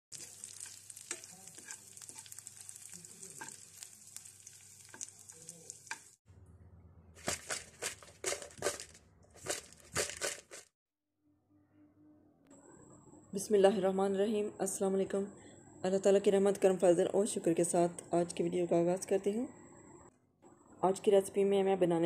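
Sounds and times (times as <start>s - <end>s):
garlic sizzling in oil: 0.1s - 6.2s
metal spoon stirring pan: 0.1s - 6.2s.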